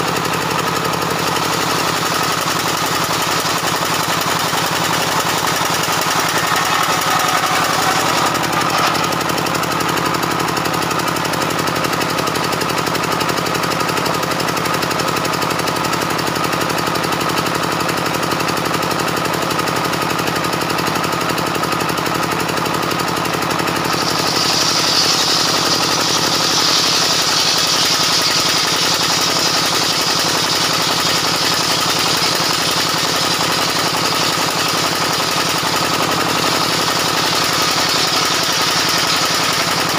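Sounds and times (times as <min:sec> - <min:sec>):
saw blade whine ripping timber: 0:00.0 - 0:11.4, 0:21.7 - 0:39.9
circular saw pulsing drone: 0:04.0 - 0:09.6, 0:23.8 - 0:33.1.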